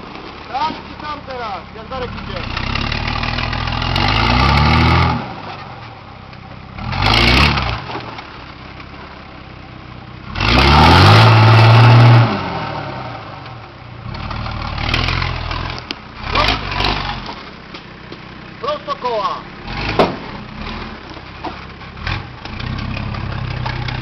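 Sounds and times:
wheels spinning on dirt: 0.0 - 9.5, 13.2 - 24.0
diesel engine revving hard: 1.2 - 5.7, 6.7 - 8.0, 10.2 - 13.4, 14.0 - 17.4, 18.6 - 21.0, 22.0 - 24.0.

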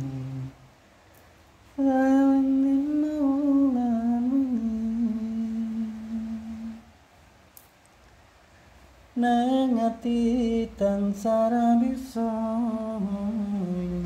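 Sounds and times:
person humming: 0.0 - 0.7, 1.8 - 6.9, 9.2 - 14.0.

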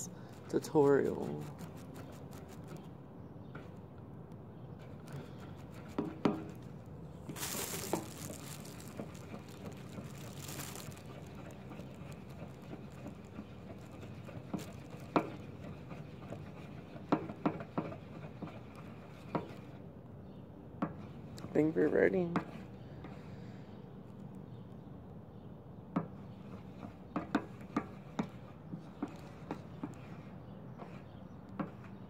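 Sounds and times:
brush scraping in a bowl: 0.4 - 2.8, 7.4 - 19.8.

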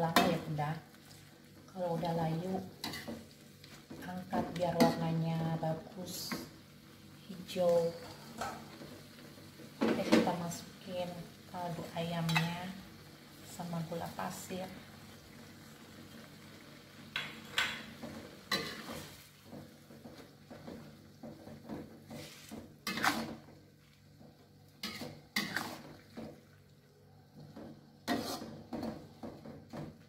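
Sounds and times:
metal spatula scraping a wok: 18.5 - 19.2, 22.0 - 23.5, 24.8 - 26.0, 28.0 - 28.9.

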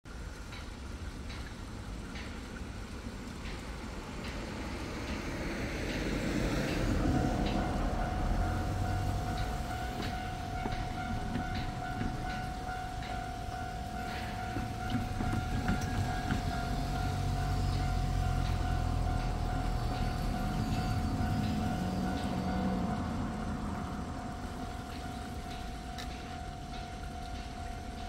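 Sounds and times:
car driving over crossing: 5.4 - 26.7
level crossing alarm: 6.6 - 28.0.

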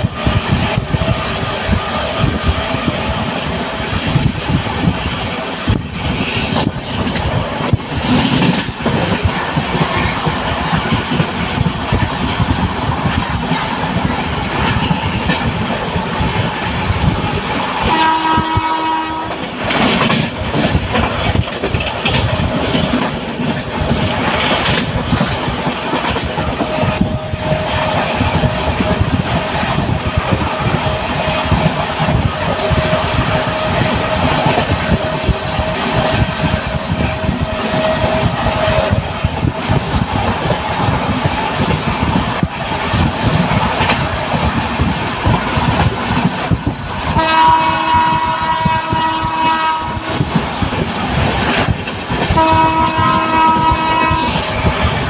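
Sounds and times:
rushing air: 0.0 - 55.0
train wheels clattering on rails: 0.0 - 55.0
train horn: 17.8 - 19.5, 47.2 - 50.3, 52.3 - 54.6.

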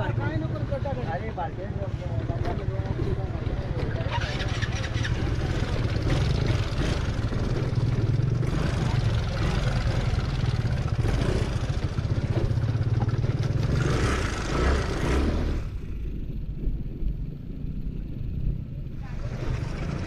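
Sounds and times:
scooter engine running: 2.2 - 16.3, 18.8 - 20.0.

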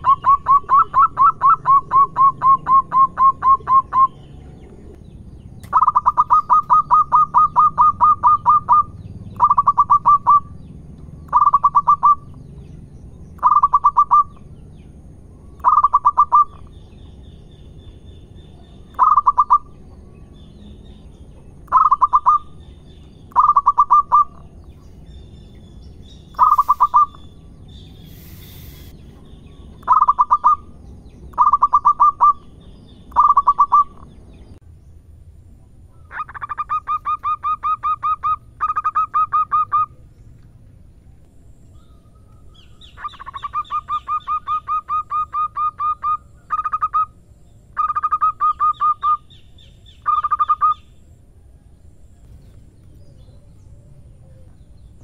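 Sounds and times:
doves cooing: 0.0 - 5.0, 5.6 - 10.6.

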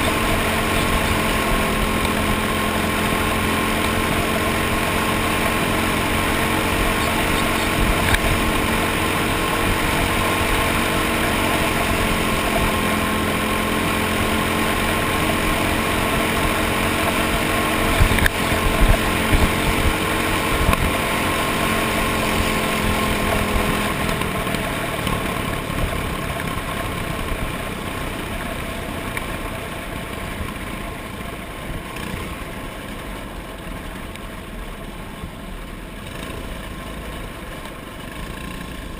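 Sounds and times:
rushing wind: 0.0 - 29.6
kart engine running: 0.0 - 38.9.

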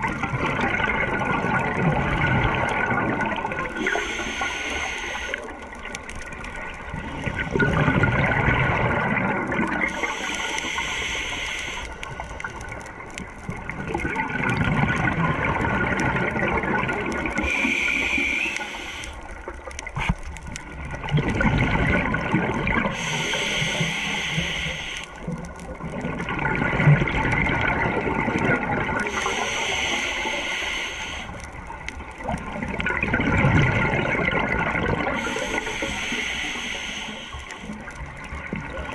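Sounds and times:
exhaled bubbles rushing: 0.0 - 11.0, 11.6 - 36.6, 37.2 - 38.9
regulator hiss on inhale: 3.7 - 5.7, 9.8 - 13.0, 17.4 - 20.2, 22.9 - 25.3, 29.0 - 31.6, 35.0 - 38.0.

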